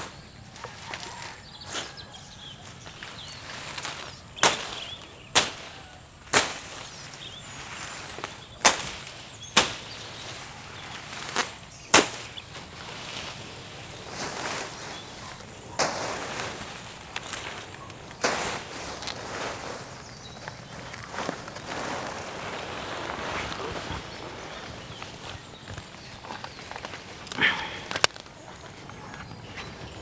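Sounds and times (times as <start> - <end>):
rustling leaves: 0.0 - 30.0
plant stems snapping: 11.2 - 12.4, 25.7 - 28.3.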